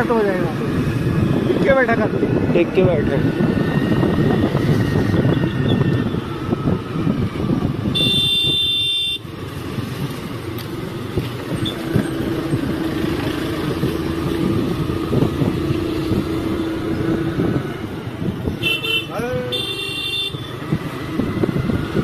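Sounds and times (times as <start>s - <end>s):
wind buffeting microphone: 0.0s - 8.7s, 9.4s - 19.5s, 20.3s - 22.0s
vehicle horn: 7.9s - 9.2s, 18.6s - 20.5s.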